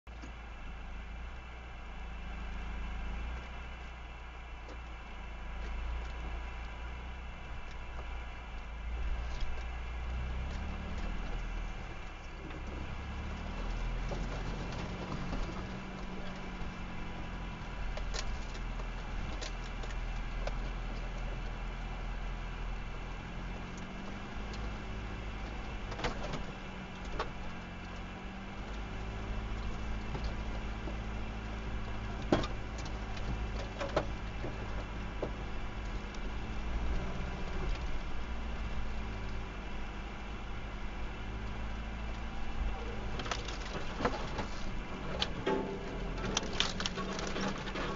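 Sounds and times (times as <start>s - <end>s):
off-road vehicle engine crawling: 0.0s - 47.9s
vehicle bumping knocks: 28.4s - 37.4s, 42.7s - 47.9s.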